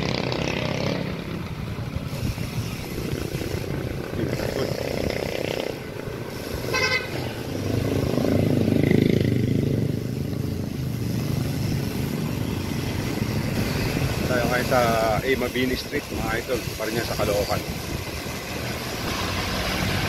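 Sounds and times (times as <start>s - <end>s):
road noise: 0.0s - 20.0s
wind rumbling on microphone: 0.0s - 20.0s
short horn toot: 6.7s - 7.2s.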